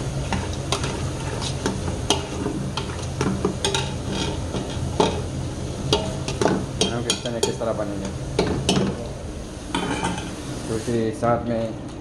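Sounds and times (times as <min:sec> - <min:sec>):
onions sizzling in oil: 0:00.0 - 0:11.0
metal spoon scraping a pot: 0:03.6 - 0:05.2.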